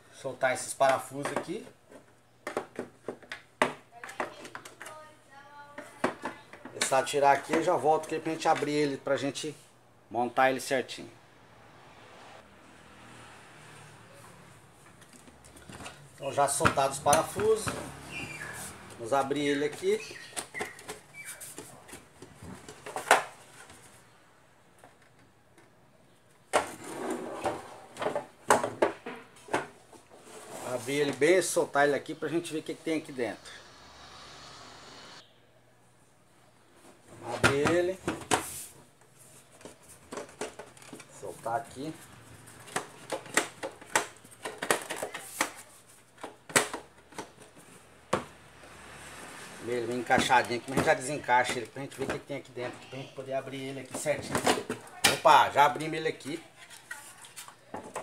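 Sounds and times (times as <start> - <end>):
plastic clattering and scraping: 19.6 - 23.9, 26.5 - 31.3, 36.8 - 41.3, 42.4 - 48.3, 53.8 - 55.2.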